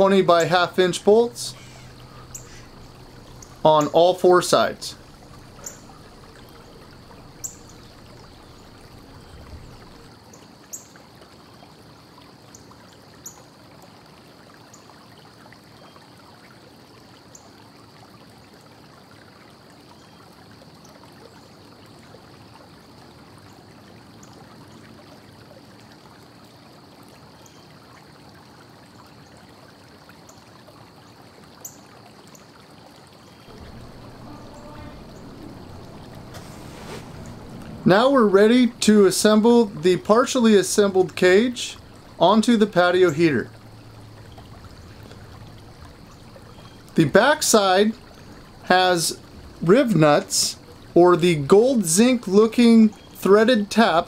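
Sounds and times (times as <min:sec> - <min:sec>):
steady low hiss: 0:00.0 - 0:10.2, 0:33.4 - 0:54.0
faint high tone: 0:33.5 - 0:36.4.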